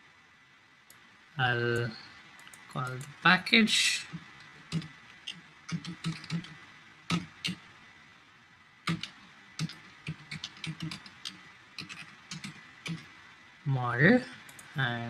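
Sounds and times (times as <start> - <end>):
computer keyboard typing: 4.7 - 7.6, 8.9 - 13.1.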